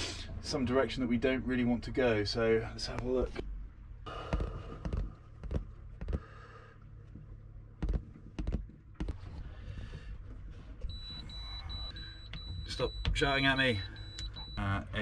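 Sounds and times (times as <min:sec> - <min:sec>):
high repeated alarm beeping: 0:10.9 - 0:15.0.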